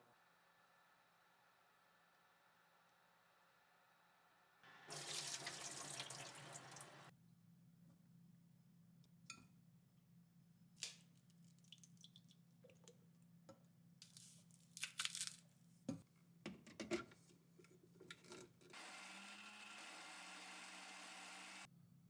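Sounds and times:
countertop blender running: 18.8s - 21.7s.

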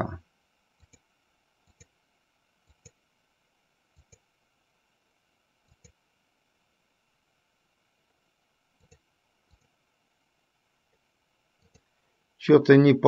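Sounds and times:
computer mouse clicks: 0.8s - 2.0s, 2.6s - 3.0s, 3.9s - 4.3s, 5.6s - 6.0s, 8.8s - 9.8s, 11.6s - 11.9s.

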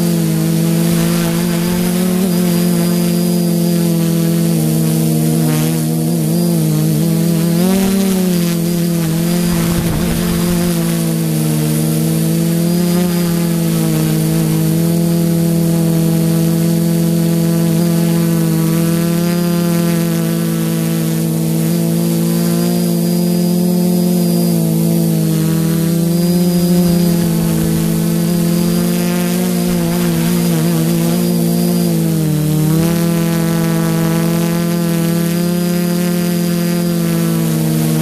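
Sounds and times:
quadcopter propellers buzzing: 0.0s - 38.0s
gust of noise: 8.8s - 11.9s, 25.4s - 31.4s.

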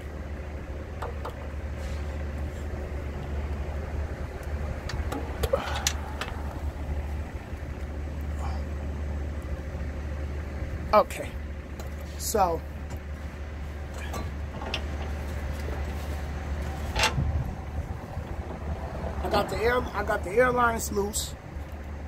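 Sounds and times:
engine idling: 0.0s - 22.0s
handling clicks and knocks: 4.4s - 6.6s.

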